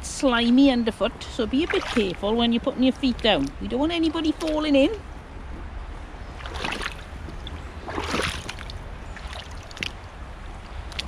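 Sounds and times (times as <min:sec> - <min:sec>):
boots sloshing through shallow water: 0:01.3 - 0:05.0, 0:06.1 - 0:11.0.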